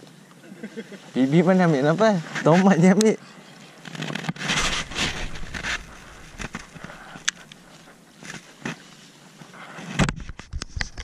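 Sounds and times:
clothing rustling on microphone: 3.9s - 11.0s.

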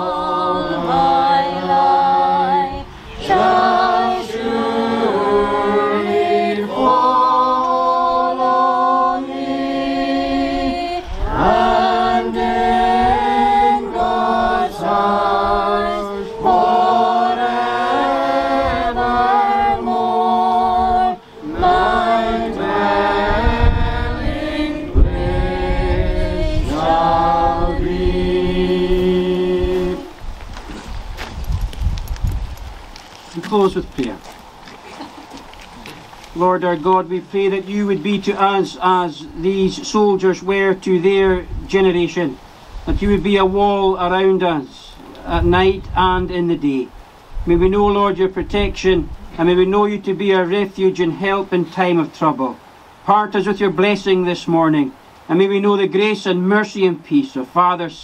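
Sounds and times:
congregation singing unaccompanied: 0.0s - 30.2s.

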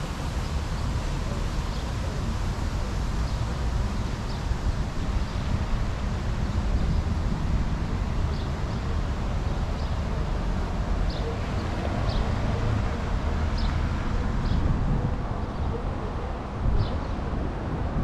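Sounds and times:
traffic rumble: 0.0s - 18.0s
wind on microphone: 11.7s - 18.0s.

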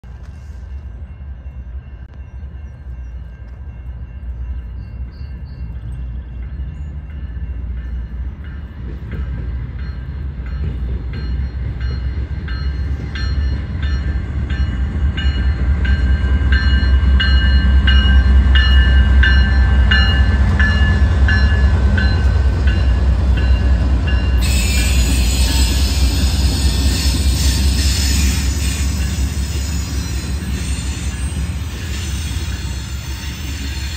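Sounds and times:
diesel locomotive rumble: 0.0s - 33.9s
wheel and rail hiss: 24.4s - 33.9s.

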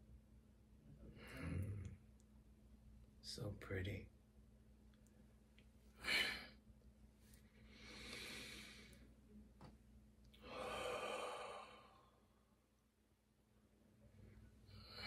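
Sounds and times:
man breathing and sighing: 6.0s - 6.6s, 7.6s - 9.1s, 10.4s - 12.2s.

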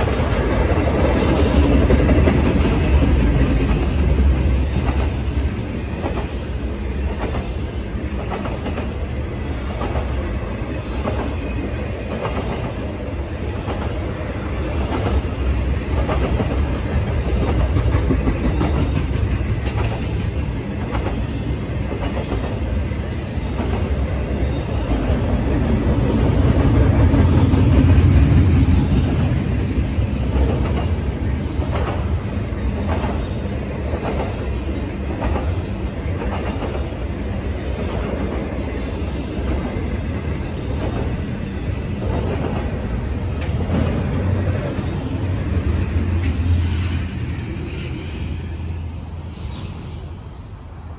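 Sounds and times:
steel wheels rumbling on rail: 0.0s - 50.9s
wheels clacking over rail joints: 14.6s - 22.8s, 30.2s - 46.6s.

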